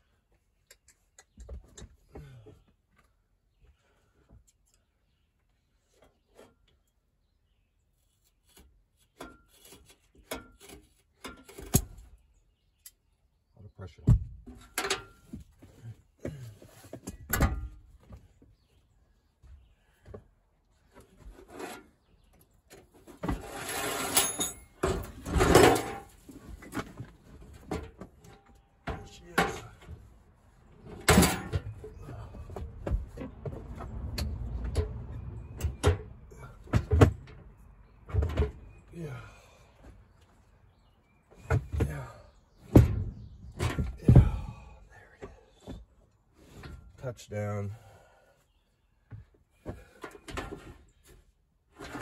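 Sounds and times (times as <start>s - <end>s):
heavy metal clunks and thuds: 14.0s - 18.3s, 24.6s - 30.1s, 30.8s - 39.4s, 41.4s - 47.0s.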